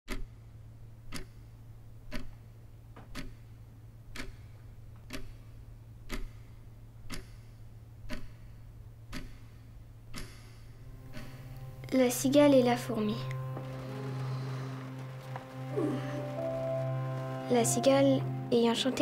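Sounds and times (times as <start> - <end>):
clock ticking: 0.1 - 14.0
faint low hum: 0.2 - 19.0.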